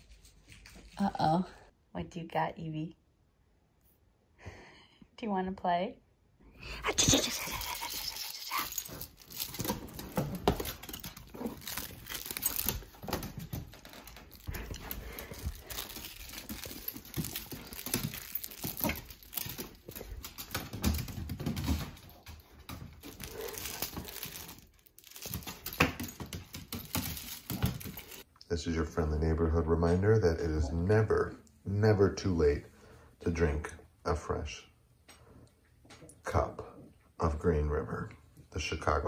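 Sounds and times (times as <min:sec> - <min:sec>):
plush rope toy rubbing and shaking: 0:06.9 - 0:21.5
puppy play noises: 0:06.9 - 0:25.8.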